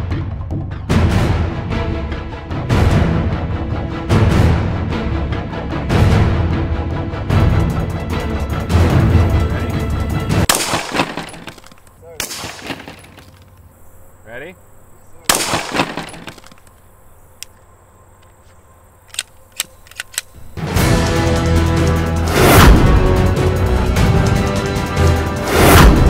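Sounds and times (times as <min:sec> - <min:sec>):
suppressed pistol shot: 0:10.5 - 0:13.1, 0:15.3 - 0:16.6
bullet smashing through phones: 0:10.5 - 0:13.4, 0:15.3 - 0:16.6
light clicks: 0:16.2 - 0:20.4.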